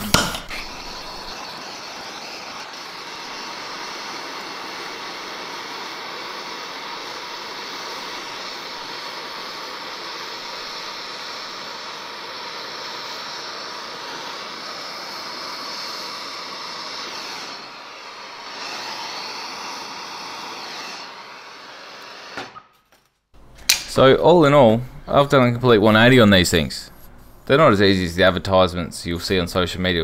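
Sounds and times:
torch flame hissing: 0.0s - 22.7s.

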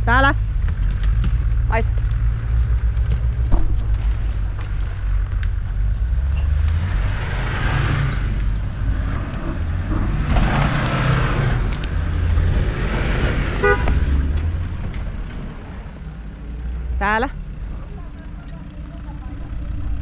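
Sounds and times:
car engine pulling in surges: 2.7s - 20.0s
high-pitched squeal: 8.1s - 8.6s.

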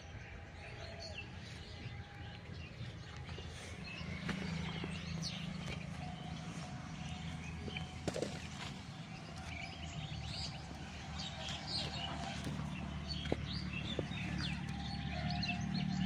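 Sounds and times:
birds chirping and calling: 0.0s - 16.0s.

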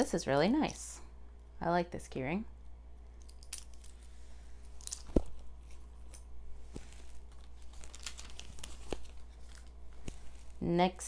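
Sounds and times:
plastic packaging crinkling: 6.6s - 10.6s.

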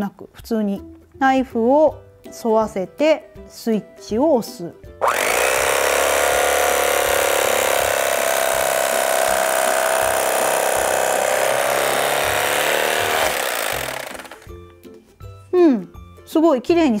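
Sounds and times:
electric carving knife running: 5.0s - 14.6s.

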